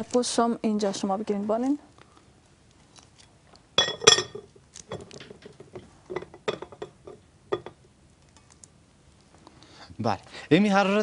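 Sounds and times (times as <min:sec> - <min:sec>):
glass lid clinking on glass bowl: 0:03.8 - 0:04.5, 0:06.1 - 0:07.8.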